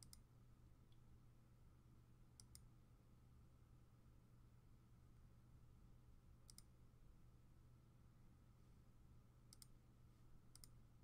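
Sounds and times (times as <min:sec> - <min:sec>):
computer mouse clicking: 0:00.0 - 0:00.2, 0:02.4 - 0:02.7, 0:06.5 - 0:06.7, 0:09.5 - 0:09.8, 0:10.5 - 0:10.8
low steady hum: 0:00.0 - 0:11.0.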